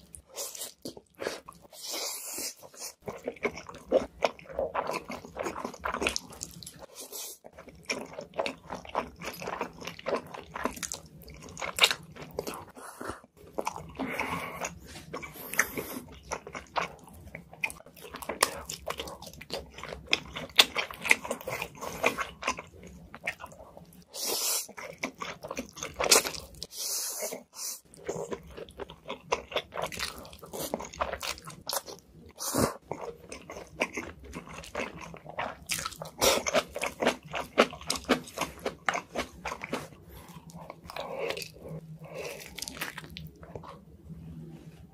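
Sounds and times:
wet chewing: 27.3s - 43.9s.

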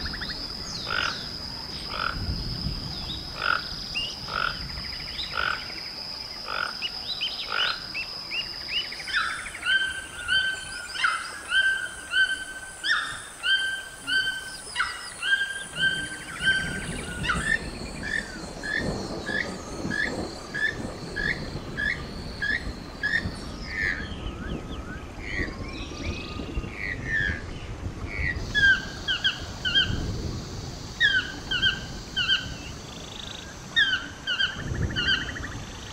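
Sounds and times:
toucan croaking calls: 0.0s - 2.3s, 3.4s - 5.8s, 6.4s - 8.0s, 9.0s - 24.1s, 28.2s - 30.0s, 31.0s - 35.6s
rainforest background sound: 0.0s - 35.9s.

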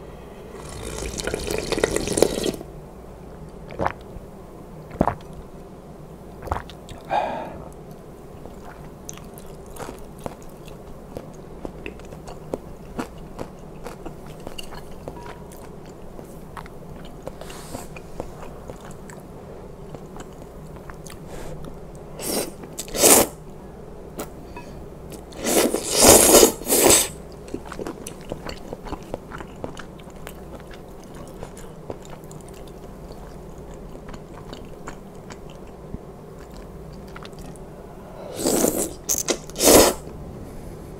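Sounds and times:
noodle slurps: 0.6s - 2.6s, 22.2s - 23.3s, 25.4s - 27.2s, 38.3s - 40.0s
man chewing: 6.4s - 23.3s, 25.1s - 37.7s.

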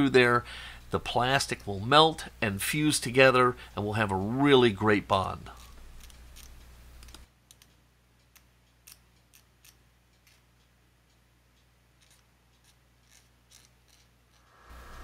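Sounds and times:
knife clicking and scraping plastic: 5.5s - 7.7s, 12.0s - 14.5s.

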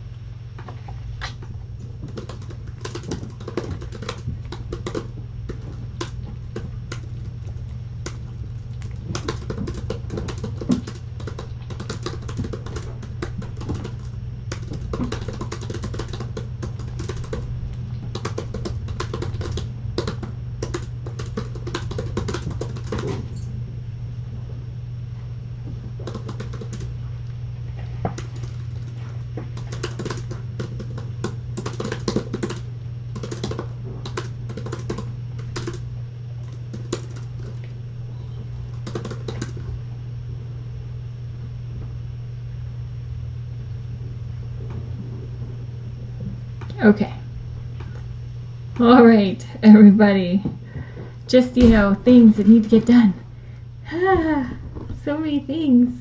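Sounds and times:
steady low hum: 0.0s - 56.0s
laptop keyboard typing: 1.9s - 7.2s, 8.8s - 23.5s, 26.0s - 26.9s, 28.0s - 35.8s, 36.4s - 37.7s, 38.6s - 39.7s.

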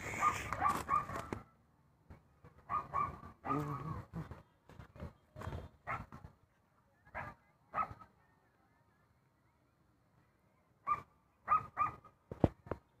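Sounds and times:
dog barking: 0.2s - 1.3s, 2.7s - 3.9s, 5.8s - 6.1s, 7.1s - 8.1s, 10.8s - 12.1s.

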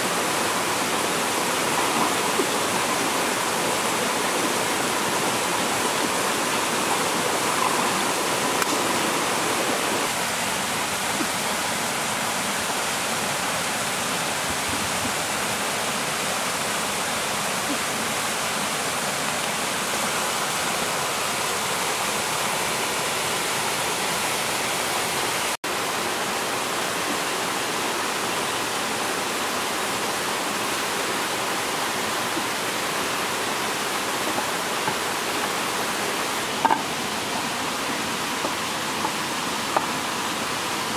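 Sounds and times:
stream flowing over stones: 0.0s - 40.9s.

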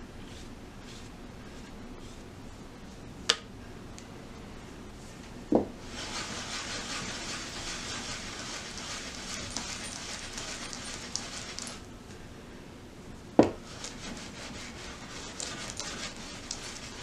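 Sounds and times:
clay scraping against board: 5.9s - 11.8s, 13.6s - 17.0s
clay block thudding on wooden board: 13.4s - 13.6s.

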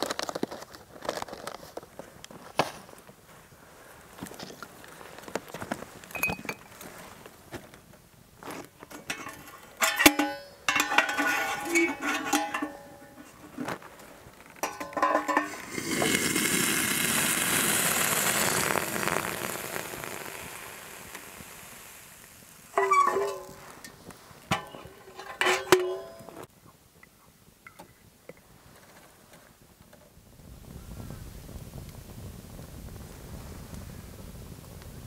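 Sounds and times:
metal pot clinking and rattling: 8.9s - 13.6s, 14.5s - 16.4s, 22.8s - 26.5s.

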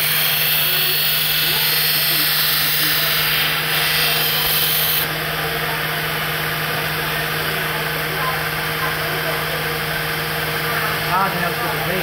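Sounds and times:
metal blade grinding hiss: 0.0s - 5.1s
belt grinder motor hum: 0.0s - 5.5s.

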